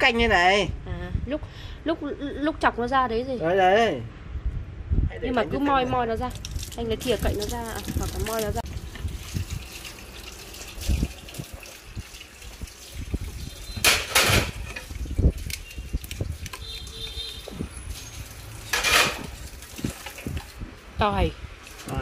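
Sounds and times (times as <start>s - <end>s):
water running from a tap: 6.3s - 20.7s.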